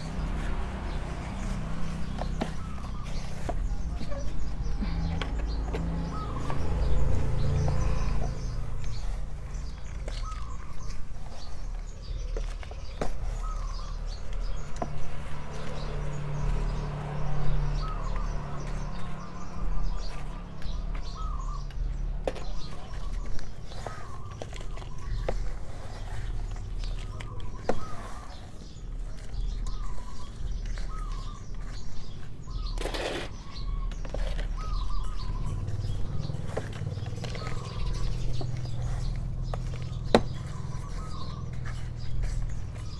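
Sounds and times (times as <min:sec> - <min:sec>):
pot scraping through soil: 0:00.0 - 0:21.3, 0:22.3 - 0:42.9
birds chirping: 0:00.0 - 0:42.9
plastic pot scraping in soil: 0:22.3 - 0:42.9.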